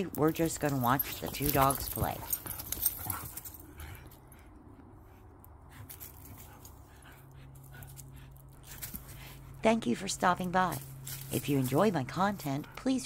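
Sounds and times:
steady low hum: 0.0 - 13.0
scuffling sounds: 10.6 - 12.7.

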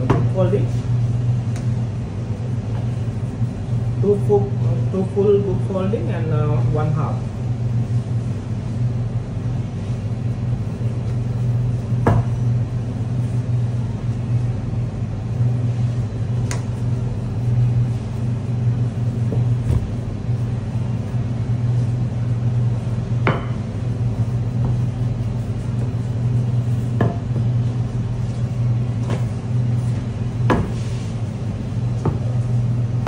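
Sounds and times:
kitchen machinery hum: 0.0 - 33.0
rolling pin knocking on worktable: 12.0 - 12.3, 23.2 - 23.6, 30.5 - 30.8.

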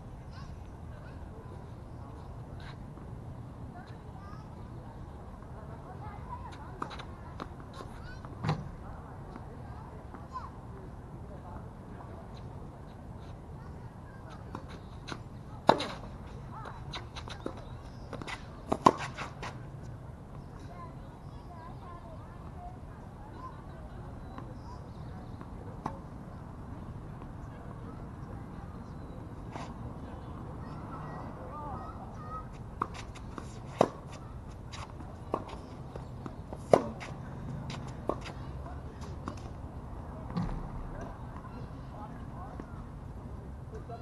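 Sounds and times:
tennis ball bouncing: 14.5 - 16.1, 16.9 - 19.5, 32.8 - 38.4
racket hitting tennis ball: 14.6 - 16.2, 16.9 - 19.6, 32.8 - 35.7, 36.5 - 38.4
tennis racket hitting ball: 32.8 - 35.6, 36.6 - 38.3.

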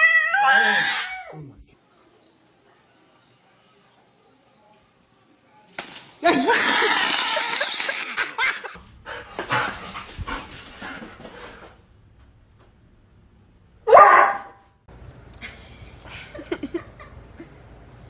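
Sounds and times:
dog barking: 13.9 - 14.6.

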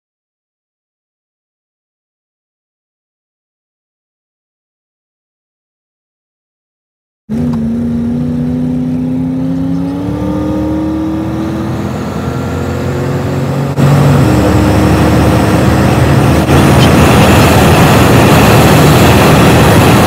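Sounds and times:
car engine accelerating: 7.3 - 20.0
road noise: 7.3 - 20.0.

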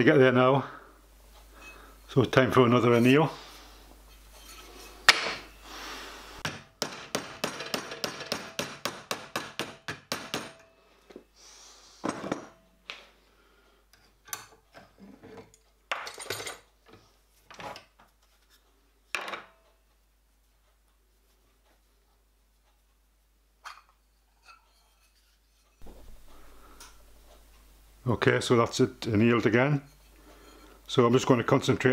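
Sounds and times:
metal tools knocking and clanking: 14.2 - 16.7.

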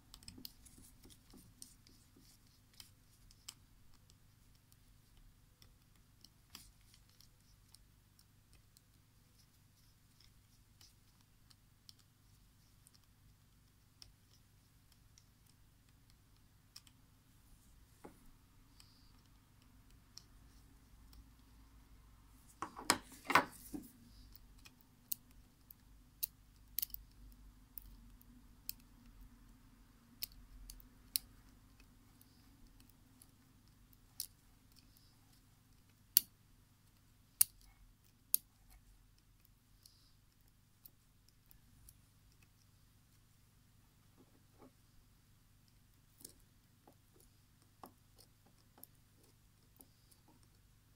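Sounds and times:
tweezers clicking on plastic: 24.1 - 42.6.

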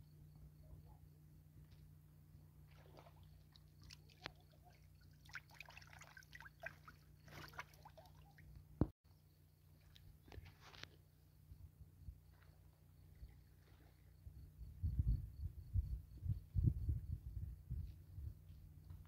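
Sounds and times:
faint rustles and clicks: 9.8 - 11.2.

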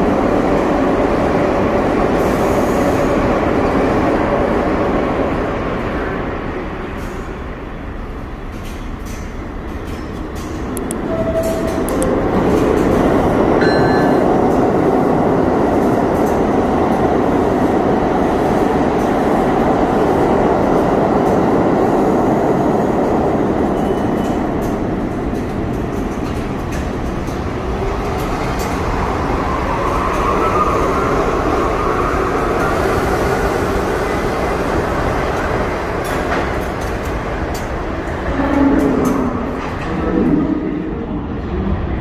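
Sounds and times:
train rumble: 0.0 - 42.0.

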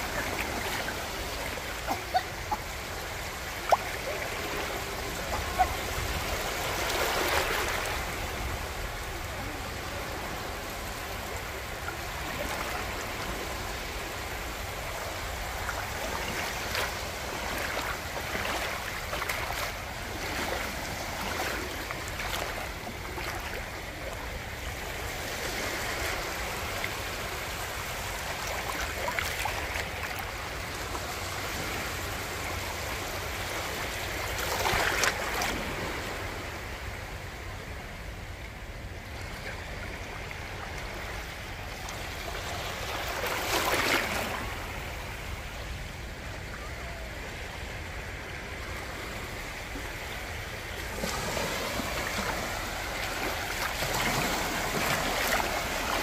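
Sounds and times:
small waves lapping: 0.0 - 56.0.

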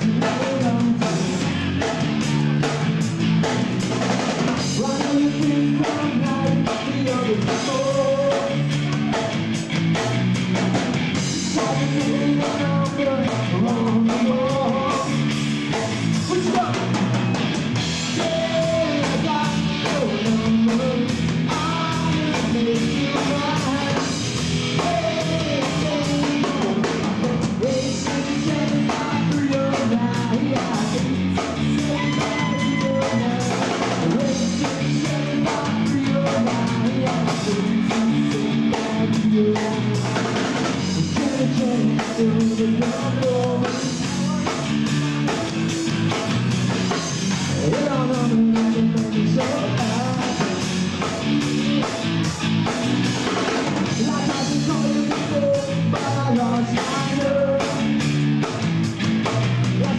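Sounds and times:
man singing through microphone: 0.0 - 1.4, 4.7 - 9.0, 11.5 - 15.2, 16.2 - 16.9, 18.1 - 24.2, 24.8 - 40.2, 40.8 - 45.4, 47.5 - 52.2, 53.9 - 57.9
drum kit beat: 0.0 - 59.9
electric guitar and bass: 0.0 - 59.9.

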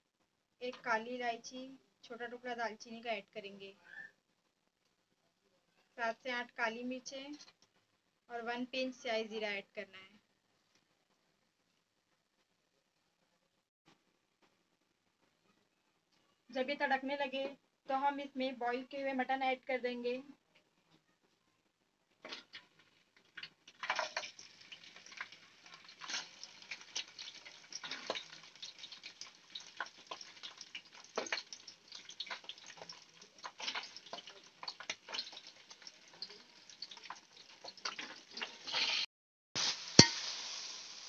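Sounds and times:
meat sizzling in hot oil: 23.2 - 41.0.

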